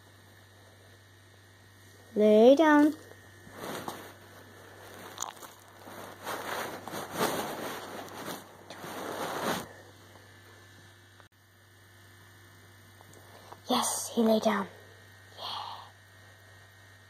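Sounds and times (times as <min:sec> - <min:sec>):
steady electrical hum: 0:00.0 - 0:17.0
rustling against microphone: 0:03.4 - 0:09.8.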